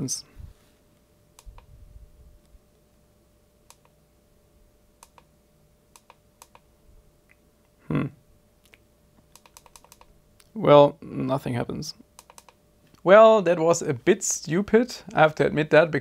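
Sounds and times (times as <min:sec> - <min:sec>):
faint steady hum: 0:00.0 - 0:16.0
short low vocal sound: 0:07.8 - 0:08.2.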